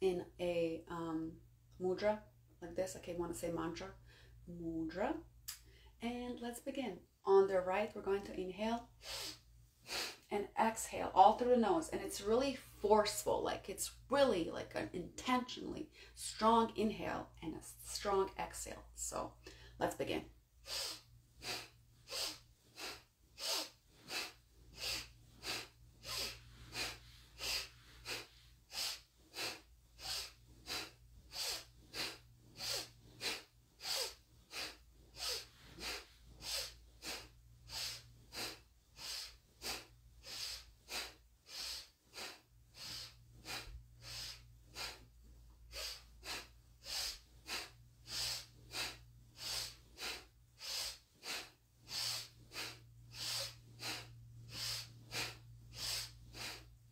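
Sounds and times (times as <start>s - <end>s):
woman's forceful nasal breathing: 8.9s - 10.3s, 20.6s - 56.9s.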